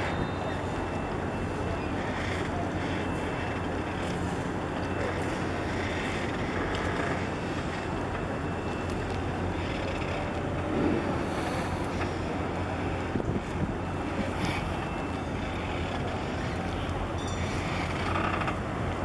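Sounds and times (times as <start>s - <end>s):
constant low hum: 0.0s - 19.0s
wind noise on microphone: 10.6s - 15.0s.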